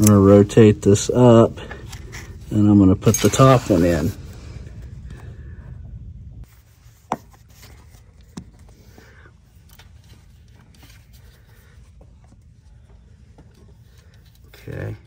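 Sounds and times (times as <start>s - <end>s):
light rubbing and scraping: 0.0s - 4.4s
low steady hum: 0.0s - 15.0s.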